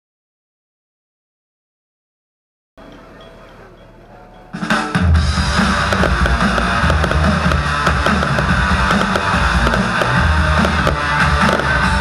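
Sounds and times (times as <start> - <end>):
loud rock music: 4.6 - 12.0.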